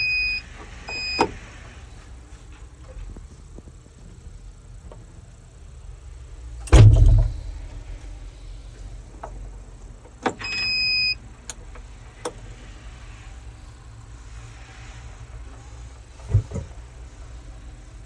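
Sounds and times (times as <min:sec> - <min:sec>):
electronic beep: 0:00.0 - 0:01.2
loud thud with rumble: 0:06.7 - 0:07.9.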